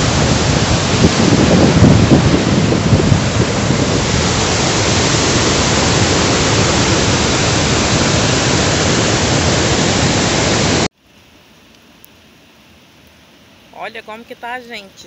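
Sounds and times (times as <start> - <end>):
floodwater rushing through dam gates: 0.0 - 10.9.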